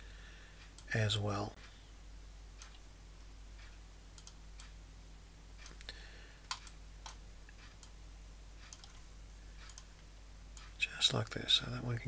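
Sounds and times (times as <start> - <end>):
low steady hum: 0.0 - 12.0
computer mouse clicking: 3.6 - 4.8, 5.6 - 8.0, 8.6 - 9.0, 9.6 - 10.0.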